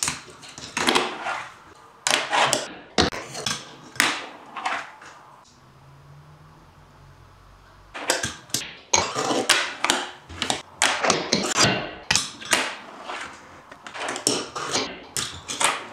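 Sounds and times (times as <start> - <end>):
fingerboard trucks grinding: 0.5 - 5.2, 9.0 - 11.7, 12.4 - 15.9.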